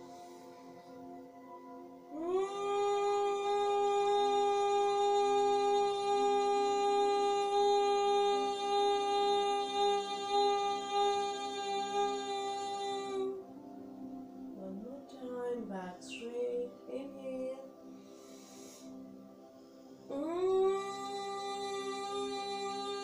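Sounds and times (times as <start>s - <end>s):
soft background music: 0.0s - 23.0s
woman humming a long note: 2.1s - 13.4s, 20.1s - 23.0s.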